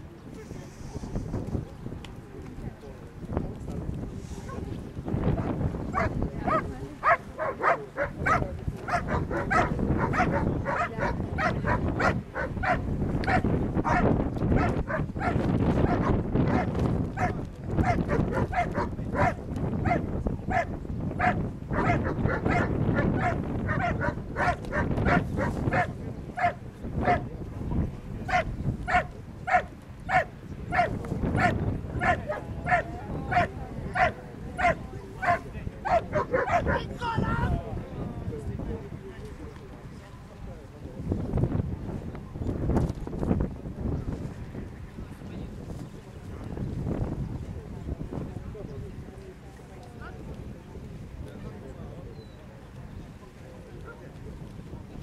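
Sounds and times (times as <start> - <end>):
dog barking: 5.9 - 27.2, 28.3 - 36.9.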